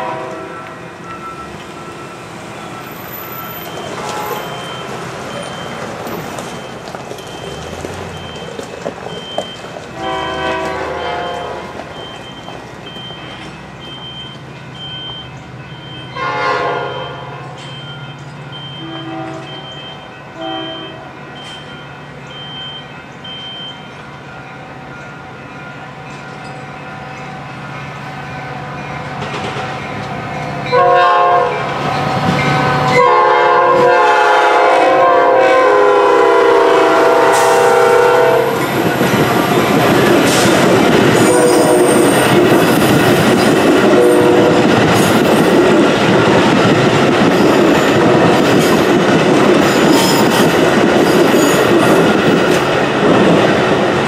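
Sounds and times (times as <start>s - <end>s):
train horn blasts: 0.0s - 1.5s, 3.9s - 4.8s, 9.9s - 11.9s, 16.1s - 17.4s, 18.6s - 21.6s, 30.7s - 39.8s, 41.2s - 42.4s, 43.8s - 44.8s
train wheel rumble and clatter: 0.0s - 15.7s, 25.6s - 35.1s, 35.7s - 54.0s
crossing bell ringing: 0.0s - 52.7s.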